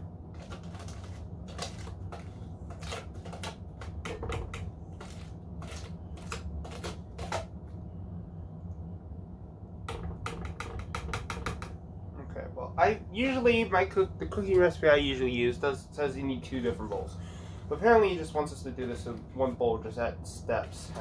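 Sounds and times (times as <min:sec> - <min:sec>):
wire whisk beating mixture in tub: 0:00.4 - 0:07.5.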